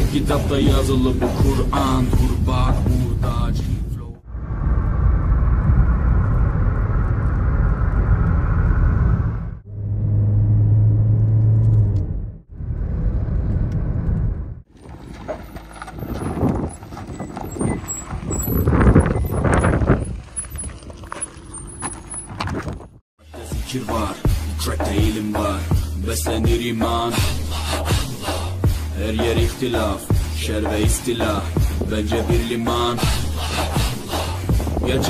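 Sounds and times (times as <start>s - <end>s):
road and engine noise inside car: 4.4s - 18.5s
footsteps on stony dirt track: 14.7s - 23.0s.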